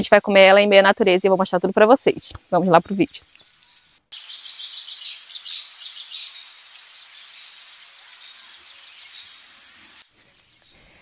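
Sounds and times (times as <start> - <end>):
insect hiss: 0.0 - 11.0
loud high-pitched insect buzz: 1.5 - 11.0
short high bird chirps: 3.2 - 11.0.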